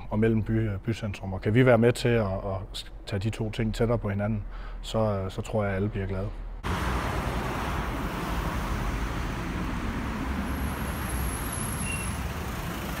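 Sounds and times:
cars passing: 6.5 - 13.0.

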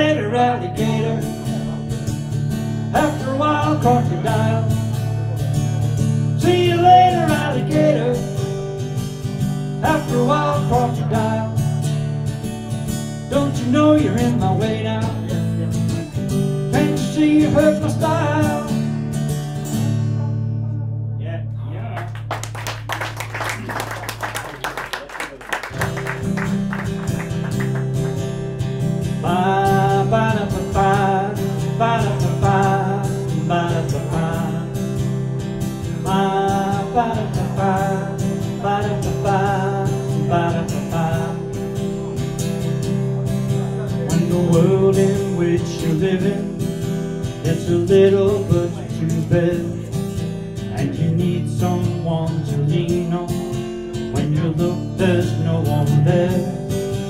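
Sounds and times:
man singing: 0.0 - 2.0, 2.8 - 5.4, 6.2 - 8.7, 9.7 - 11.9, 13.2 - 18.9, 29.0 - 42.4, 43.4 - 57.0
acoustic guitar strummed: 0.0 - 22.4, 25.6 - 57.0.

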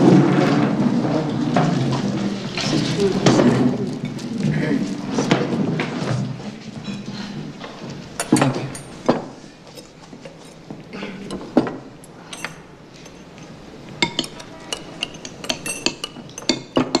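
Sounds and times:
cutlery clinking on plate: 14.0 - 17.0.

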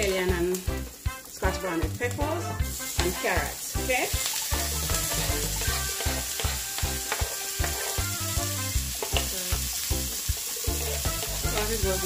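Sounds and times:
vegetables sizzling in hot oil: 0.0 - 12.0
wooden spatula scraping pan: 4.6 - 8.2, 10.7 - 11.7.

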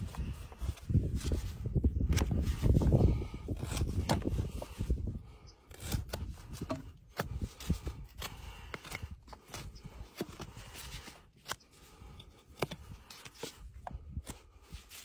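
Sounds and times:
hoof knife scraping horn: 2.2 - 13.6.

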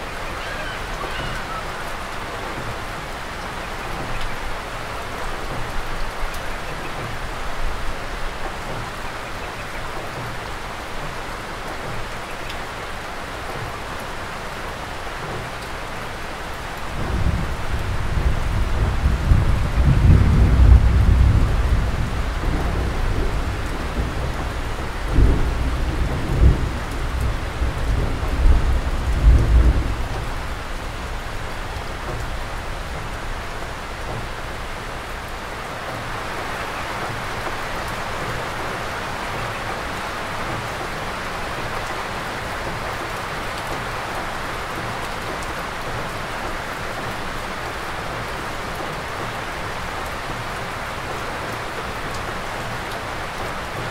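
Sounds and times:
steady rain falling: 0.0 - 53.9
thunder rumbling: 16.9 - 34.7.

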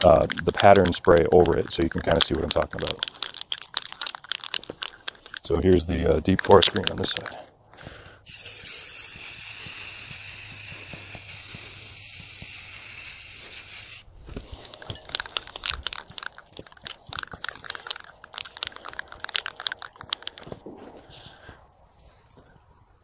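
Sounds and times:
crunching and clicking: 0.0 - 13.6, 14.2 - 21.7
spray can hissing: 8.2 - 14.6.

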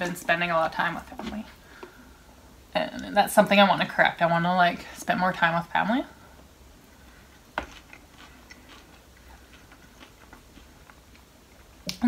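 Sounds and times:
chewing salad: 7.6 - 12.0.

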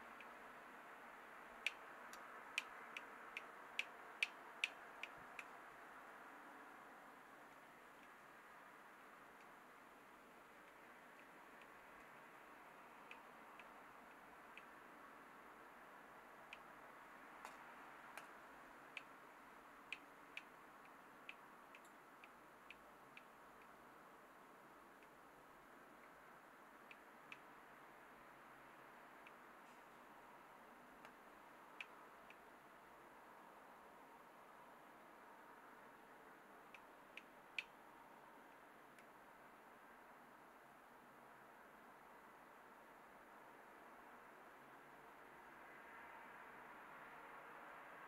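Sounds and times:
faint steady hiss: 0.0 - 48.0
faint sharp clicks: 1.6 - 5.6, 10.6 - 14.8, 17.4 - 19.2, 19.8 - 23.8, 26.8 - 27.5, 31.0 - 32.5, 36.6 - 37.8, 38.5 - 39.2.

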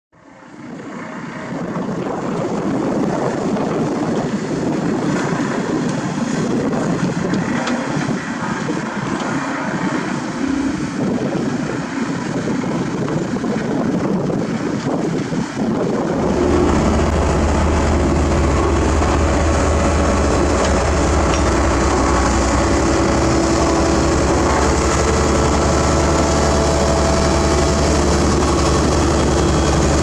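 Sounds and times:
diesel engine running: 4.4 - 13.3, 15.8 - 30.0.

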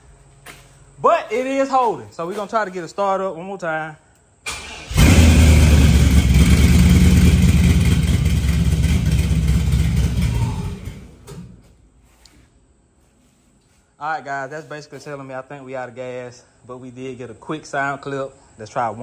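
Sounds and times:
car engine starting and running: 4.5 - 11.5.

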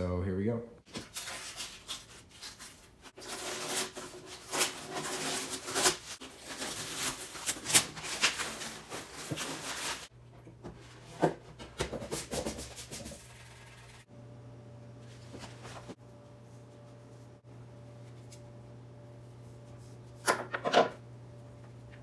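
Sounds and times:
low steady hum: 12.9 - 22.0.

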